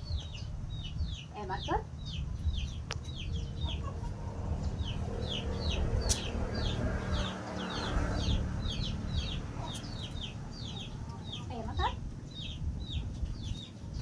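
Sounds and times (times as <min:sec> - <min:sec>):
chicks peeping: 0:00.0 - 0:14.0
low rumble: 0:00.0 - 0:14.0.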